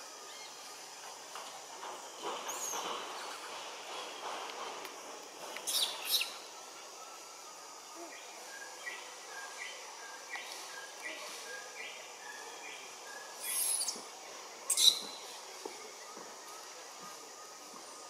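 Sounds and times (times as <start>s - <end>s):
forest background: 0.0s - 18.0s
shrill bird calls: 14.7s - 15.2s.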